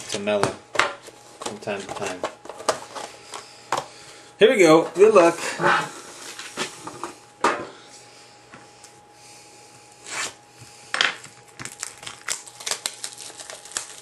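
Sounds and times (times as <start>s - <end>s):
packaging rustling and clicking: 11.4s - 14.0s.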